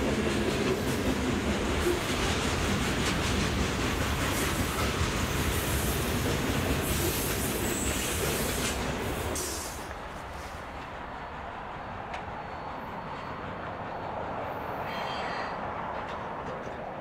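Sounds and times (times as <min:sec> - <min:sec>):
train wheels rumbling on rails: 0:00.0 - 0:17.0
high wheel squeal: 0:14.6 - 0:15.6.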